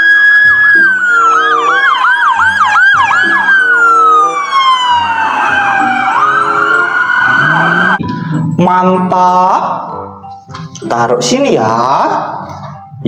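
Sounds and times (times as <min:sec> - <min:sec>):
siren fast yelp: 0:00.0 - 0:08.0
police sirens wailing: 0:00.0 - 0:08.2.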